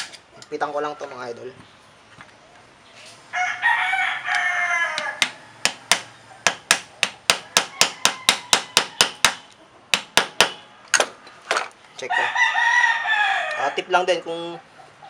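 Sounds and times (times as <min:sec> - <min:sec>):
rooster crowing: 0:03.3 - 0:06.5, 0:07.4 - 0:09.2, 0:12.1 - 0:14.0.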